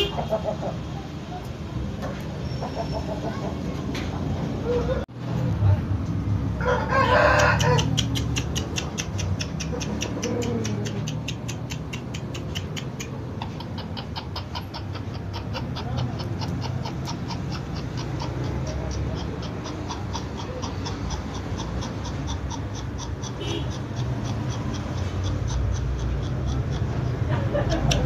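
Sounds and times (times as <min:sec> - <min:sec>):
chicken calling: 0:06.6 - 0:27.3
rapid high-pitched ticking: 0:07.8 - 0:28.0.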